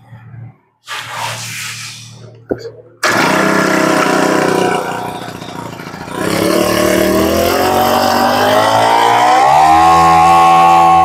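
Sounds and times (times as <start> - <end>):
brush-cutter engine revving: 3.0 - 11.0.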